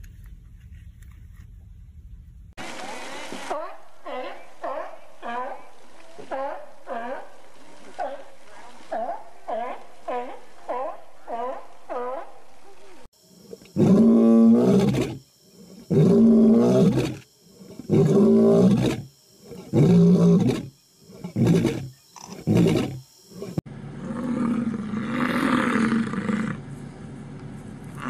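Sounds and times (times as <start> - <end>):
lion roaring: 13.8 - 26.6.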